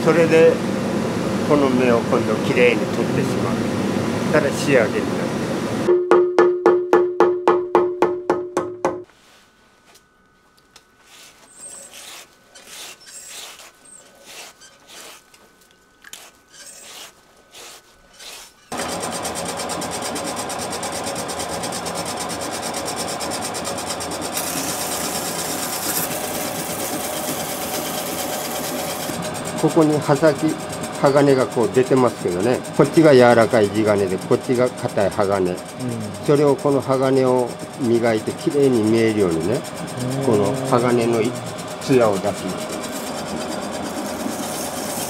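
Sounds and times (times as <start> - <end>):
rhythmic rubbing: 11.0 - 15.2, 29.6 - 45.0
knife grinding on wheel: 11.0 - 18.8, 24.3 - 45.0.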